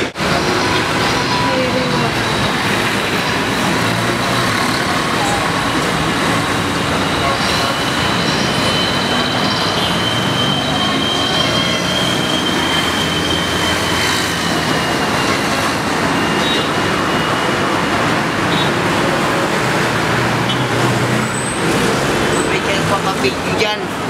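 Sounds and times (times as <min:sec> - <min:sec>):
street traffic noise: 0:00.0 - 0:24.0
high drawn-out squeal: 0:06.9 - 0:17.6.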